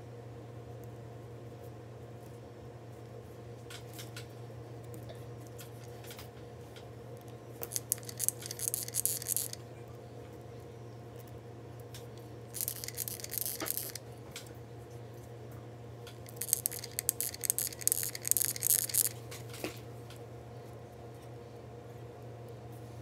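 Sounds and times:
steady low hum: 0.0s - 23.0s
seashells crackly clicking and rustling: 3.6s - 9.6s, 11.2s - 14.6s, 16.0s - 20.2s.

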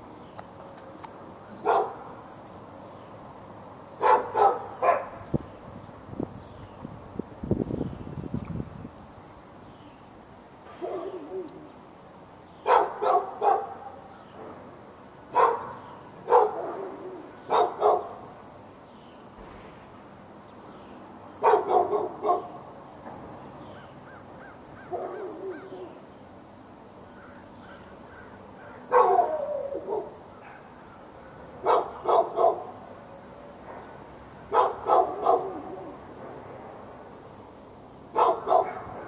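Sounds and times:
dog barking: 1.6s - 2.1s, 4.0s - 5.2s, 10.8s - 11.2s, 12.6s - 14.1s, 15.3s - 18.2s, 21.4s - 22.6s, 24.9s - 25.6s, 28.9s - 30.8s, 31.6s - 32.8s, 34.5s - 35.7s, 38.1s - 39.0s.

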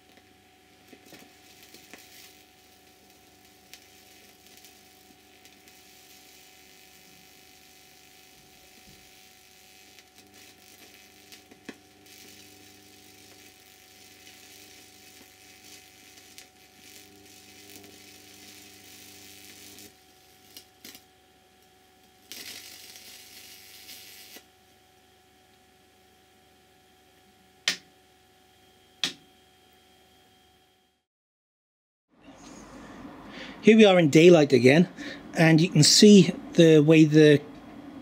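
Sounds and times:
electric arc crackling: 0.0s - 24.5s
sharp electric snaps: 0.0s - 24.5s, 27.6s - 27.9s, 29.0s - 29.2s
steady hum: 0.0s - 31.0s, 32.2s - 38.0s.

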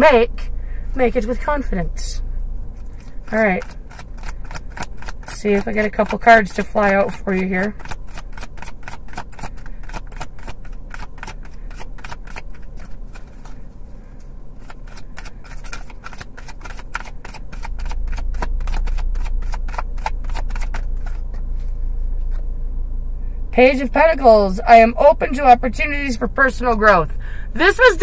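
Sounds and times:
cards being shuffled: 2.8s - 22.4s
low rumble: 17.8s - 27.7s.

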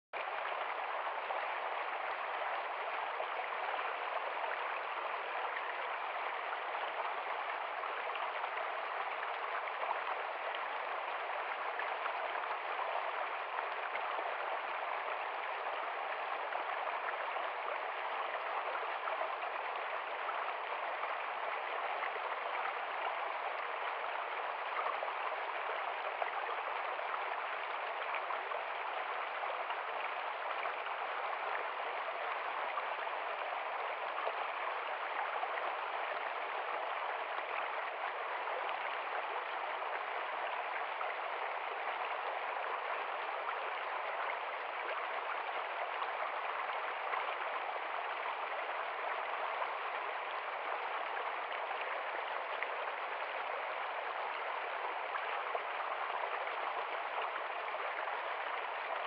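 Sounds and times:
stream rushing over rocks: 0.2s - 59.0s.

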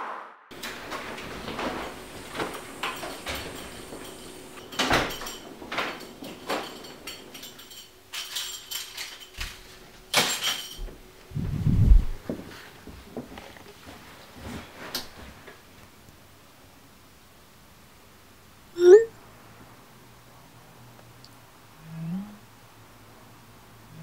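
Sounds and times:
paper bag rustling: 0.5s - 4.8s.

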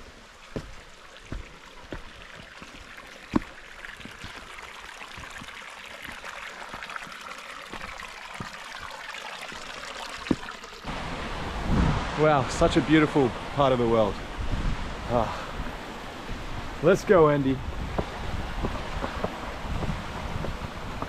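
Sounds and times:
footfalls on a trail: 0.0s - 10.5s, 17.8s - 21.0s
stream running water: 0.0s - 21.0s.

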